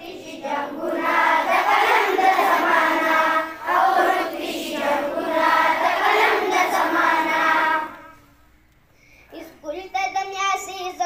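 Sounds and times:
children singing in chorus: 0.0s - 8.3s.

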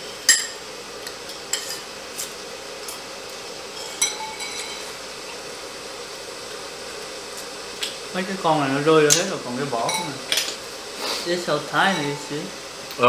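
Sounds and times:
faint steady hum: 0.0s - 13.0s
utensils clinking against dishes: 0.2s - 0.6s, 1.2s - 2.3s, 3.7s - 5.0s, 9.8s - 10.6s, 11.8s - 12.3s.

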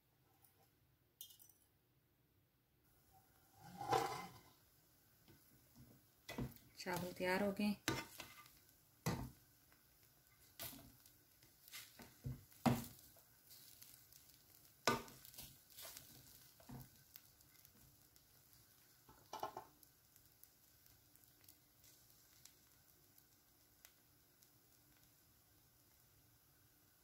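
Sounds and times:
spoon stirring rice in pot: 3.6s - 4.6s, 5.3s - 17.9s.

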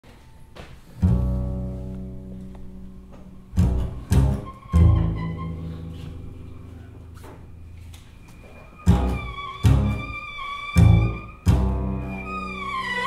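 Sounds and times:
double bass low notes ringing: 0.9s - 13.0s
double bass hard attacks: 1.0s - 6.8s, 8.8s - 10.2s, 10.8s - 12.6s.

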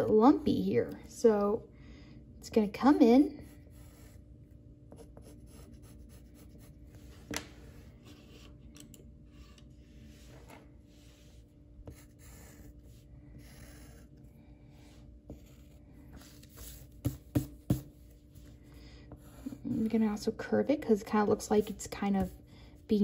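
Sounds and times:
drawing tool scratching paper: 4.9s - 6.7s, 11.8s - 14.2s.

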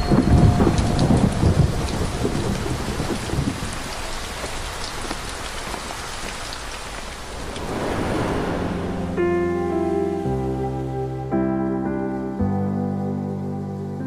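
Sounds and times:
heavy rain pattering: 0.0s - 11.0s
low rumble: 6.9s - 11.2s.

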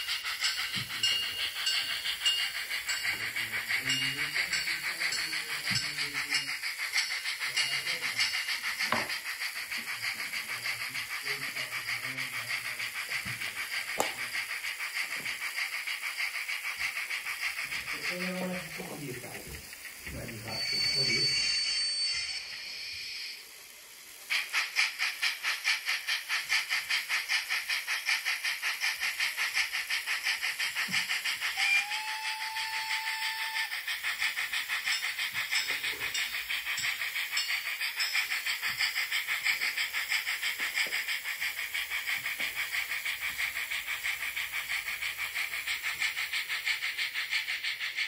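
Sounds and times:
model train steam chuffs: 0.0s - 48.0s
train whistle: 31.5s - 33.9s.

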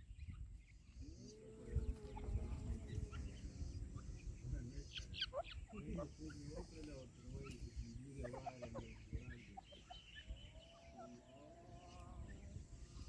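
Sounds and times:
bird low clucking calls: 0.0s - 13.0s
chicks high peeps: 0.0s - 13.0s.

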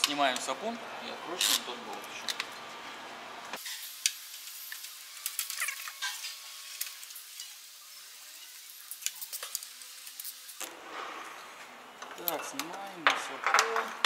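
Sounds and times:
steady hiss: 3.5s - 14.0s.

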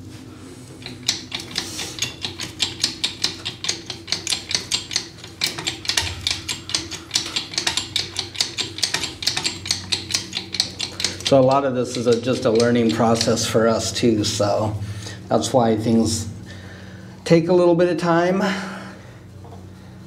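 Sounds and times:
hydraulic jack clicking: 0.8s - 13.6s.

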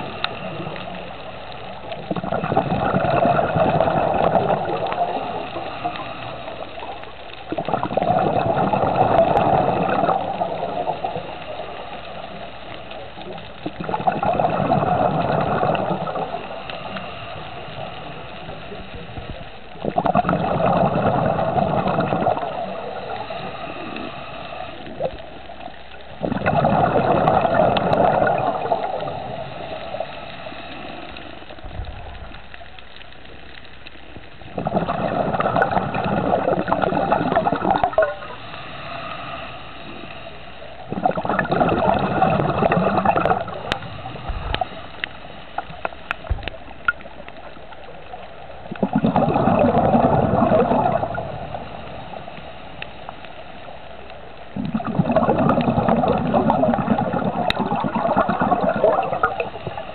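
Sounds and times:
quiet breathing: 0.0s - 48.8s, 49.6s - 54.9s, 55.8s - 59.9s
underwater exhaust bubbles gurgling: 0.0s - 59.9s.

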